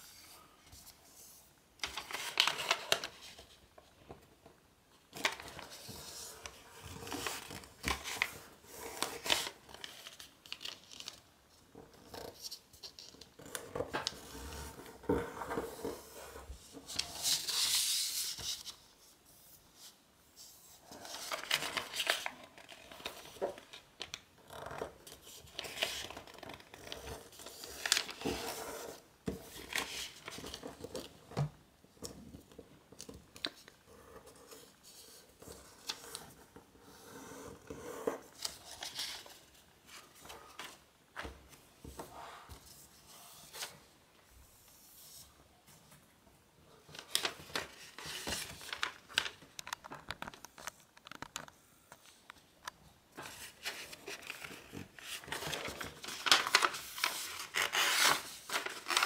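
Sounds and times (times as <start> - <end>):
paper folding and rustling: 0.0 - 4.2, 5.0 - 18.9, 19.5 - 36.6, 37.7 - 43.9, 46.7 - 52.4, 53.1 - 59.0.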